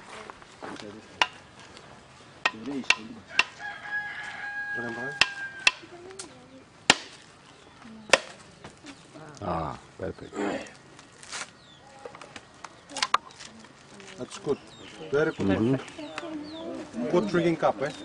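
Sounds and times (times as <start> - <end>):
machete striking coconut: 2.4 - 3.6, 5.1 - 5.9, 6.9 - 7.2, 8.1 - 8.4
rooster crowing: 3.3 - 5.9.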